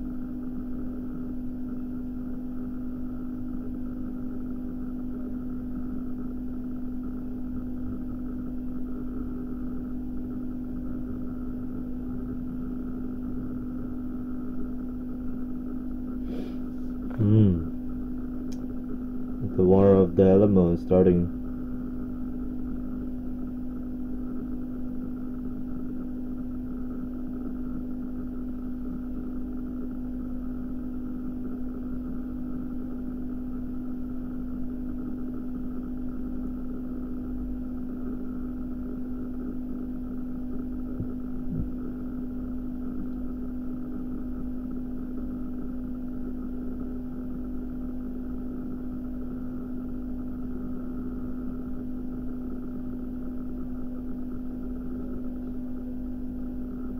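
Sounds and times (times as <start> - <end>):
steady low hum: 0.0 - 56.9
faint rumble: 40.4 - 44.5.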